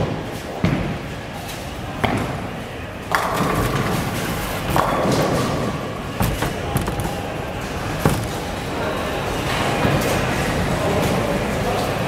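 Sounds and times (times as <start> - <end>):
bowling ball striking pins: 3.1 - 8.6.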